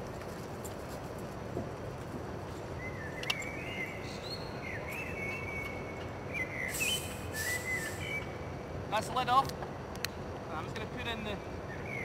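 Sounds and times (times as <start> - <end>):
bird singing whistled notes: 2.8 - 8.4, 11.7 - 12.0.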